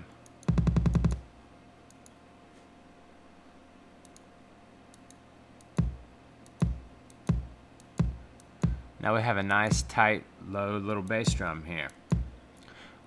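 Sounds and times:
synthesized kick drum thump: 0.5 - 1.3, 5.8 - 6.0, 6.6 - 8.9, 9.7 - 9.9, 11.3 - 11.5, 12.1 - 12.4
faint mouse clicks: 1.9 - 2.7, 4.0 - 4.3, 4.9 - 5.8.

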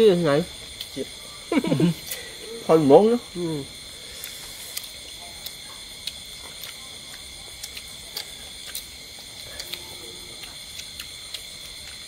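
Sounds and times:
night insects chirping: 0.0 - 12.0
people chewing and tearing food: 0.4 - 2.8, 3.4 - 12.0.

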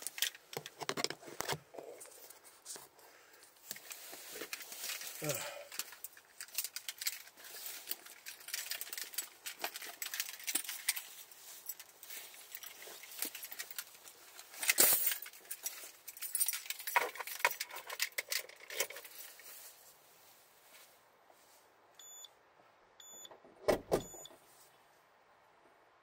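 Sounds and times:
rustling handling noises: 0.0 - 22.2, 24.1 - 25.0
keys jangling: 4.5 - 19.2.

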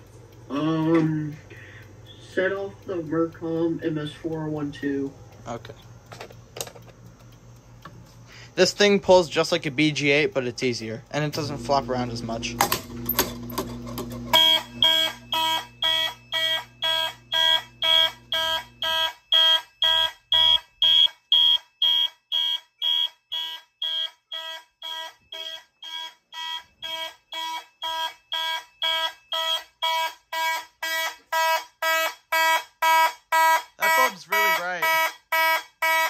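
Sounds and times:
low steady hum: 0.0 - 18.9
fire alarm horns pulsing: 8.8 - 13.1, 14.2 - 36.0.

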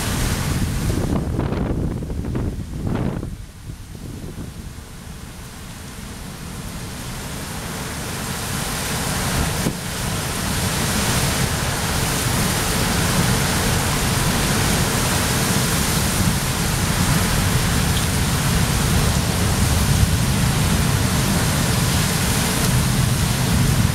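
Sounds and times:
wind buffeting microphone: 0.0 - 7.2, 9.0 - 23.9
driving rain: 0.0 - 23.9
storm wind blowing hard: 0.0 - 23.9.

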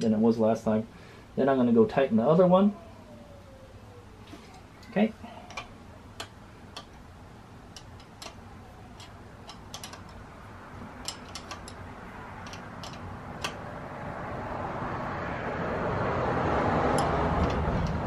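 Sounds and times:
wrench metal clicks: 5.5 - 7.0, 7.7 - 8.4, 9.0 - 10.2, 10.8 - 13.6.

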